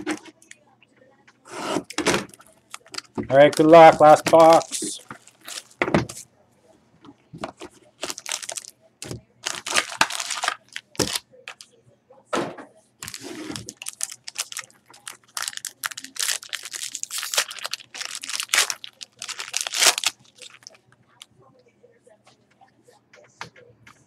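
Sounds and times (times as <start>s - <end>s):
foil wrapper tearing and crinkling: 2.7s - 5.8s, 8.0s - 11.6s, 13.0s - 20.8s
cards shuffling: 2.8s - 5.8s, 7.4s - 11.6s.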